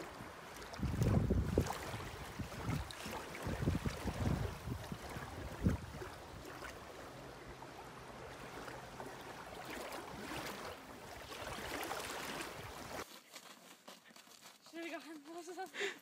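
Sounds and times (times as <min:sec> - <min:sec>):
shallow water washing: 0:00.0 - 0:13.8
wind buffeting microphone: 0:00.7 - 0:06.7.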